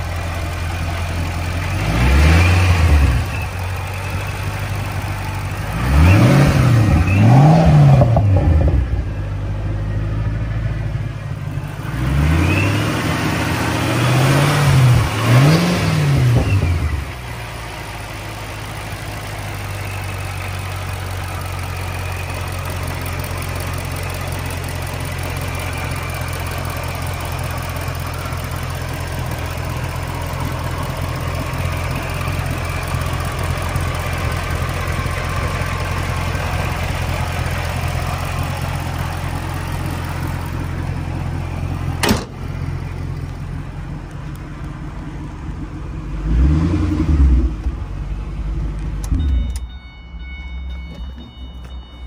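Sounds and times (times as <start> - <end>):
car engine idling: 0.0 - 52.0
engine cover slammed shut: 42.0 - 42.6
faint high chime tones: 49.2 - 52.0.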